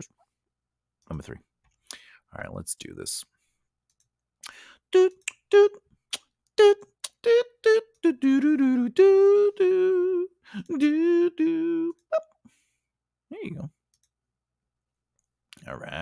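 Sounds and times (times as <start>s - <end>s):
man humming a tune: 4.4s - 5.8s, 6.6s - 12.4s.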